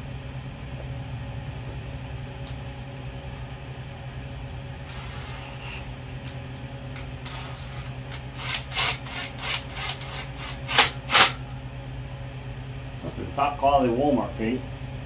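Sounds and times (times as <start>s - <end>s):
low hum: 0.0s - 15.0s
power driver whirring bursts: 4.9s - 6.0s, 7.0s - 11.5s.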